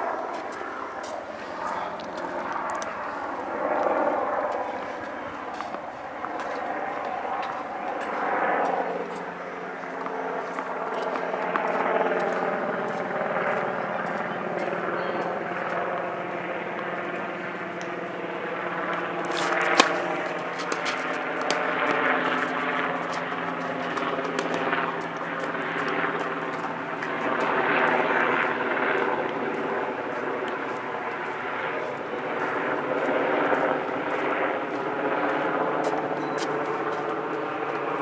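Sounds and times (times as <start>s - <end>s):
engine drone: 0.0s - 38.0s
tennis racket hitting ball: 5.0s - 8.2s, 19.2s - 28.1s.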